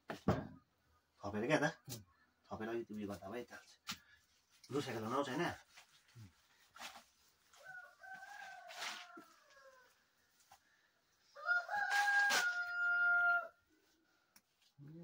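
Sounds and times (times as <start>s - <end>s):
rooster crowing: 7.6s - 10.0s, 11.3s - 13.7s.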